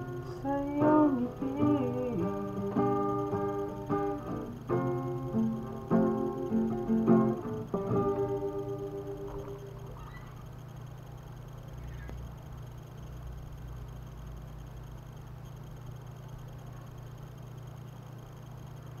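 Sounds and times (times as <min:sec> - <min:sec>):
faint hiss: 0:00.0 - 0:13.4
low electrical hum: 0:00.0 - 0:19.0.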